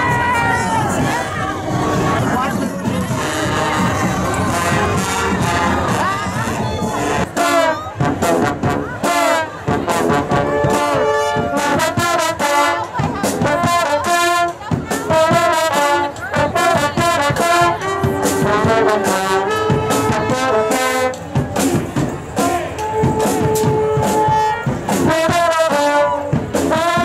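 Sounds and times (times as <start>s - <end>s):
brass band playing: 0.0s - 27.0s
drum hits: 17.0s - 25.6s.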